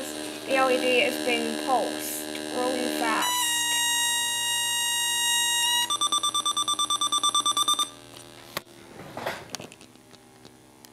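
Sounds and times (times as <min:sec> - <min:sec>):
steady buzzy electronic tone: 0:00.0 - 0:08.9
rapid high-pitched beeping: 0:03.0 - 0:08.0.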